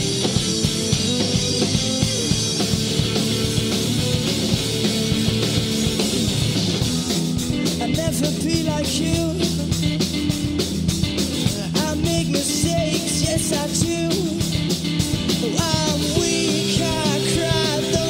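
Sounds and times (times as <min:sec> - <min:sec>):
bass guitar: 0:00.0 - 0:18.0
drums and cymbals beat: 0:00.0 - 0:18.0
electric guitars: 0:00.0 - 0:18.0.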